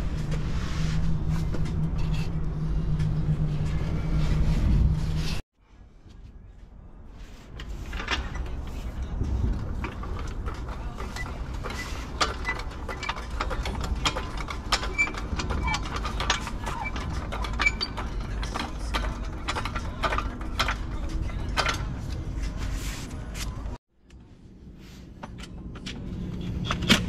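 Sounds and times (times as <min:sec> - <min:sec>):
low rumble: 0:00.0 - 0:07.1
trolley jack pump clicks and clanks: 0:07.6 - 0:22.4.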